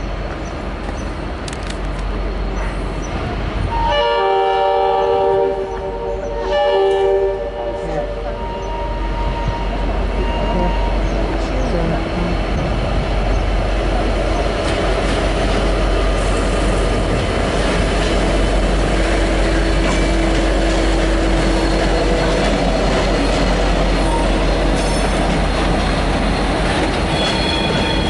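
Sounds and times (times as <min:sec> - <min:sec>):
diesel locomotive engine running: 0:00.0 - 0:28.0
wheels clicking over rail joints: 0:00.3 - 0:02.7
train wheels squealing: 0:08.4 - 0:11.2, 0:26.2 - 0:28.0.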